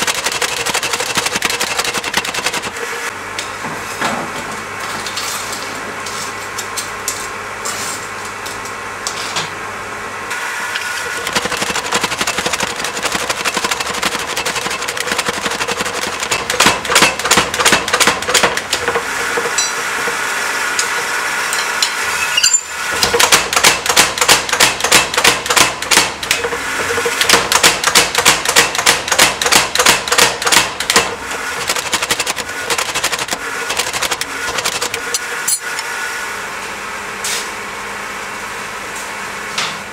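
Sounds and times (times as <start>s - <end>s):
power hammer striking steel: 11.1s - 20.2s, 20.8s - 35.6s.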